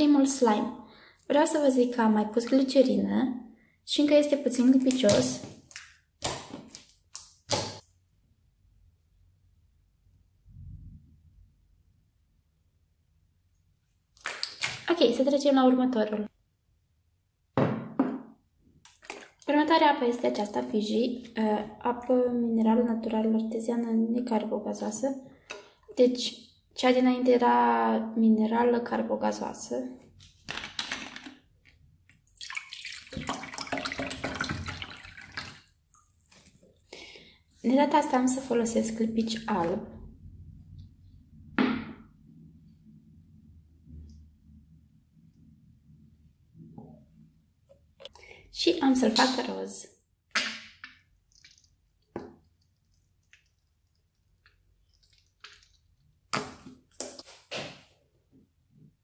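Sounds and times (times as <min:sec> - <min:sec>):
water pouring into plastic bowl: 0:18.9 - 0:19.5, 0:32.2 - 0:36.6, 0:50.3 - 0:57.2.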